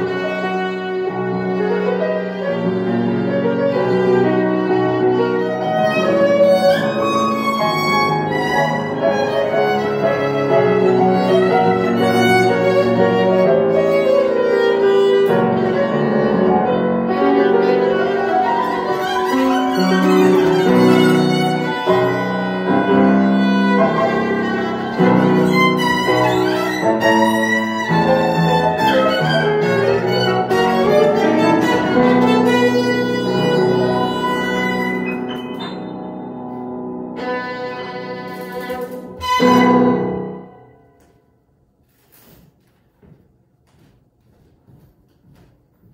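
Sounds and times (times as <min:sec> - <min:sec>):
violin melody: 0:00.0 - 0:40.9
piano accompaniment: 0:00.0 - 0:41.6.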